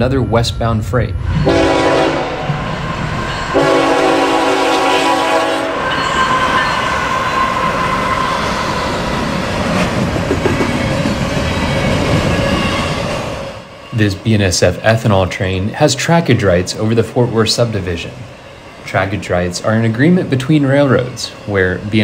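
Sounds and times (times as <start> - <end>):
freight train passing: 0.0 - 22.0
locomotive horn blasts: 1.5 - 2.5, 3.5 - 5.9.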